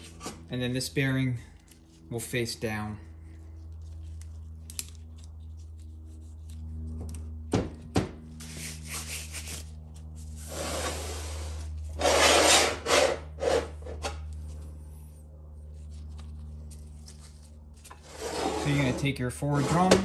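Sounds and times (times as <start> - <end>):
steady low hum: 0.0 - 20.0
parts scraping on bench: 10.4 - 14.2, 17.9 - 20.0.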